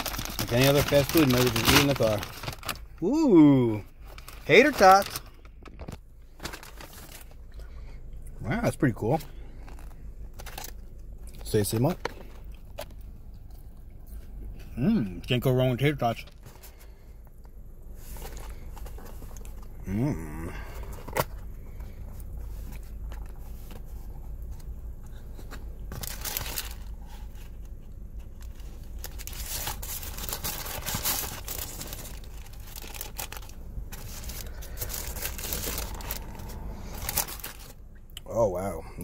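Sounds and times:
paper wrapper crinkling: 0.0s - 7.5s, 25.4s - 37.8s
steady low hum: 0.0s - 39.0s.

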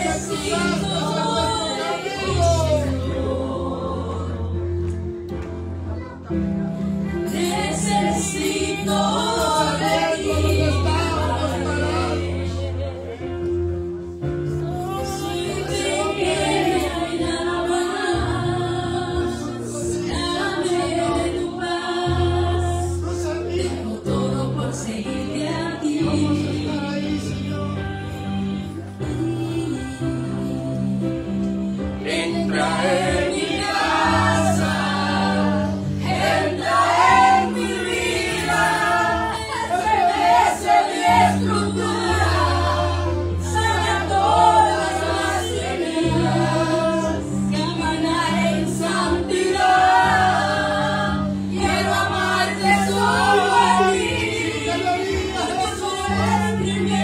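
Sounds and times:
woman singing into microphone: 7.2s - 12.9s, 14.9s - 33.4s, 41.0s - 57.0s.

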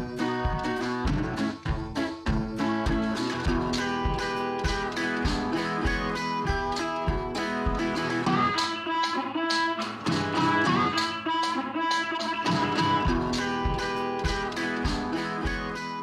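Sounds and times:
guitar instrumental with beat: 0.0s - 16.0s.

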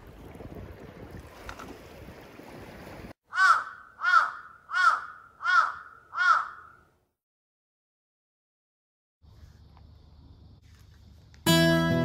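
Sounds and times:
wind and sea noise: 0.0s - 5.8s
crow cawing: 3.3s - 6.9s.

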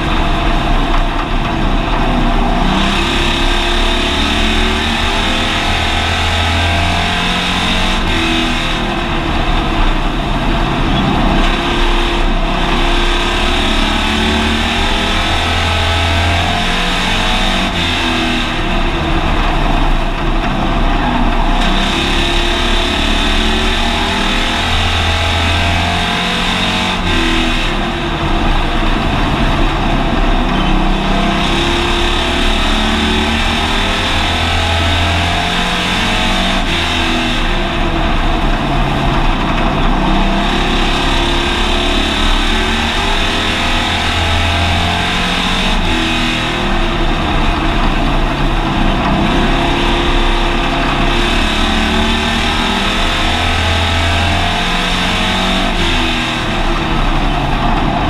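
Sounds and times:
race car engine from inside: 0.0s - 58.0s
wind and road noise: 0.0s - 58.0s.

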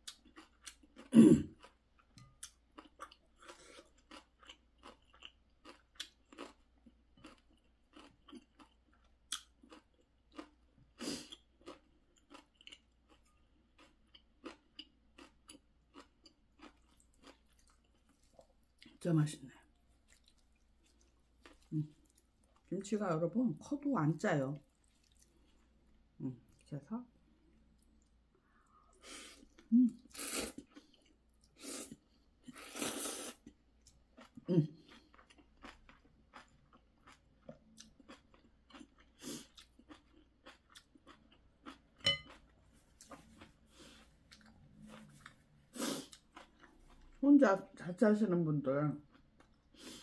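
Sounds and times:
chewing noodles: 0.0s - 19.0s, 19.6s - 22.7s, 24.6s - 26.6s, 27.4s - 47.2s
person slurping noodles: 32.6s - 33.4s.

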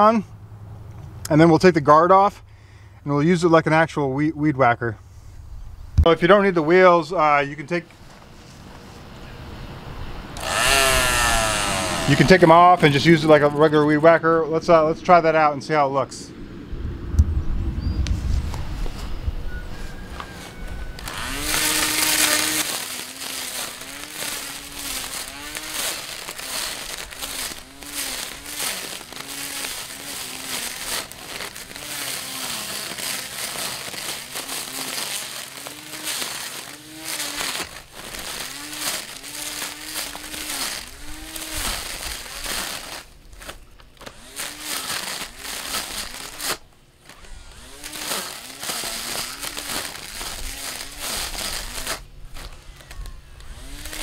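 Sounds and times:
hiss of cut grass: 10.3s - 13.8s, 18.1s - 54.0s
trimmer motor whining: 10.4s - 13.8s, 20.1s - 54.0s.

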